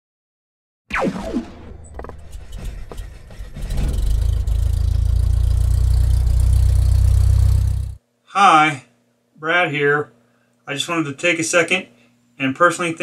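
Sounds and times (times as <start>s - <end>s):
low steady rumble: 1.7s - 8.0s.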